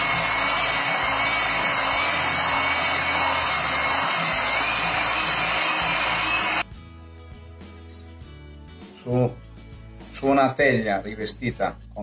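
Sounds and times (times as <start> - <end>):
electric hand mixer whirring: 0.0 - 6.6.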